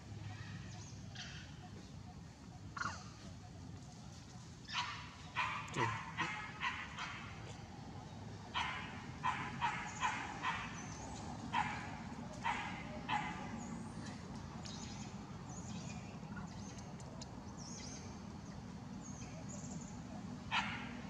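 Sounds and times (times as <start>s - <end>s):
animal barks: 4.7s - 7.6s, 8.5s - 13.6s, 20.5s - 21.0s.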